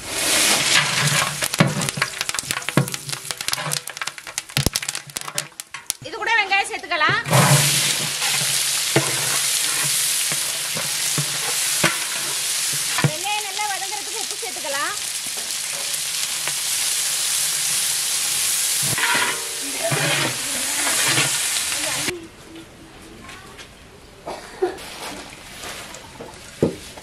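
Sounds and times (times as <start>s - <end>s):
onions sizzling in hot oil: 0.0s - 6.1s, 6.7s - 22.1s.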